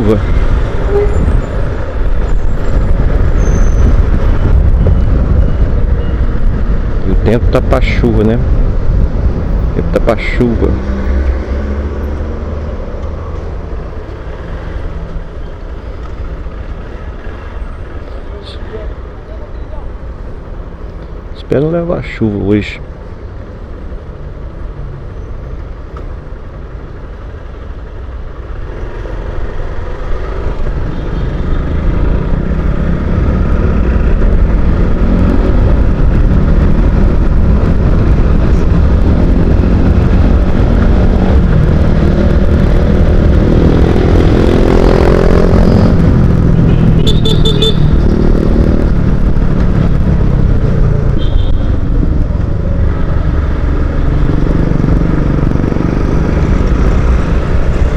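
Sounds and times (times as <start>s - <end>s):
motorcycle engine accelerating: 31.7s - 51.2s, 51.8s - 57.9s.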